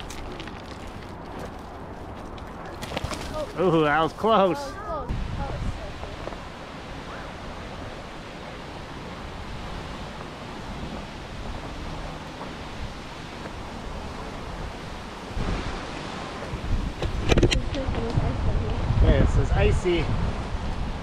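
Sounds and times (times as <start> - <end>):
steady rushing noise: 3.3 - 21.0.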